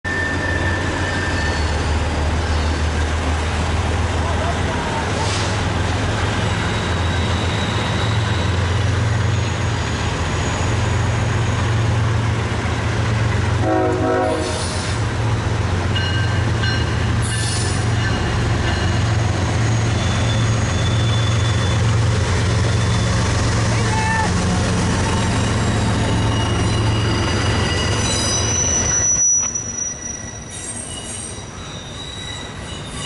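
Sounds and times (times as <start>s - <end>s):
locomotive engine rumbling: 0.1s - 33.0s
air horn toot: 13.6s - 14.8s.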